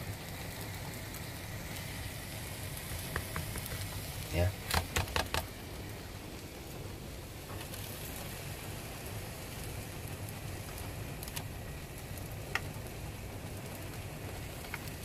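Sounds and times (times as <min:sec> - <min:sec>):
pizza sizzling in a pan: 0:00.0 - 0:15.0
sharp little pops: 0:02.9 - 0:05.6.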